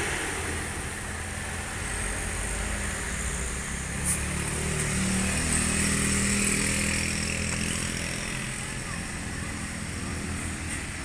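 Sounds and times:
motorcycle engine: 4.4s - 11.0s.

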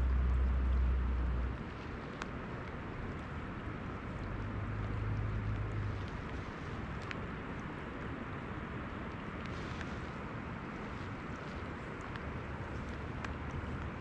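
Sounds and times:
low hum: 0.0s - 7.0s
rain falling on water: 0.0s - 14.0s.

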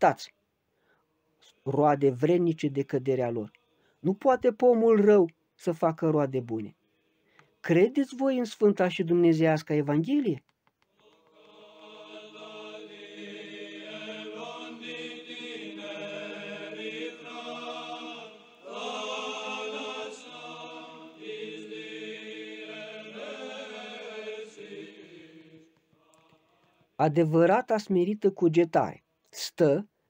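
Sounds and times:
choir chanting sustained notes: 11.0s - 26.7s.

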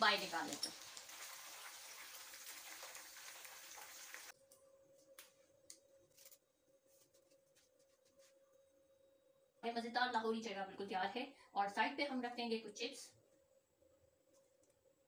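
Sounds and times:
hot oil sizzling: 0.0s - 4.3s
faint steady hum: 4.3s - 15.0s.

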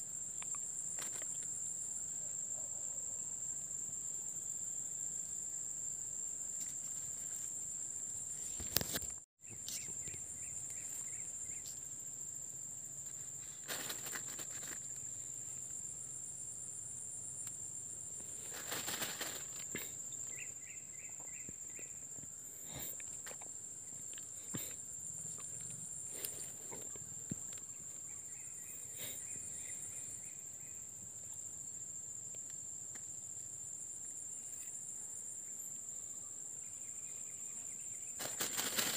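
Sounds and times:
insects trilling: 0.0s - 38.9s
pulsed insect chirping: 3.4s - 32.2s, 35.4s - 38.9s
rustling: 13.1s - 15.1s, 18.2s - 20.0s, 38.2s - 38.9s.

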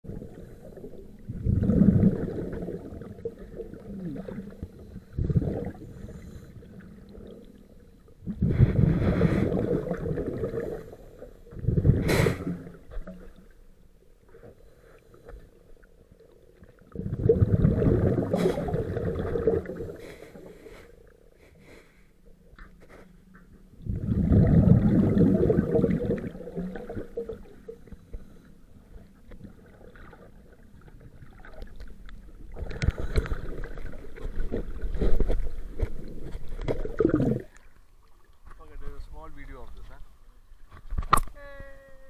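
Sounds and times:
breath bubbling underwater: 0.0s - 13.4s, 16.8s - 20.5s, 23.8s - 27.9s, 32.4s - 37.7s.

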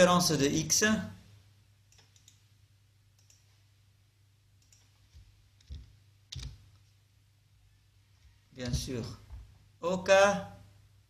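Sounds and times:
computer mouse clicks: 1.9s - 2.4s, 3.2s - 3.5s, 4.6s - 6.9s.

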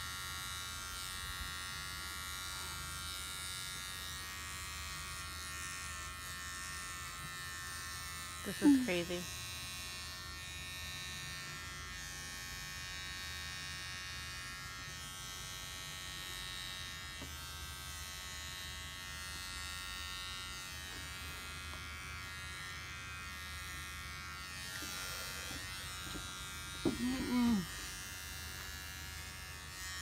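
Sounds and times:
electric trimmer running: 0.0s - 30.0s.

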